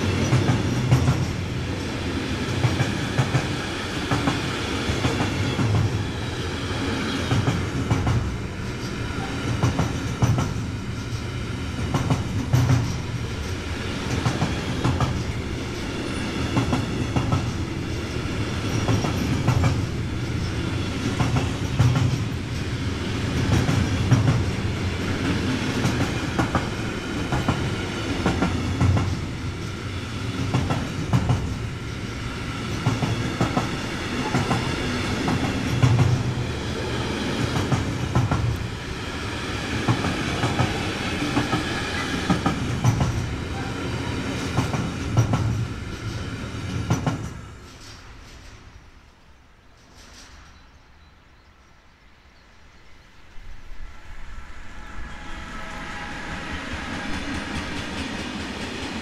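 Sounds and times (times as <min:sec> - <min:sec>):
train rumbling past: 0:00.0 - 0:59.0
wheels clacking over rail joints: 0:39.8 - 0:48.7.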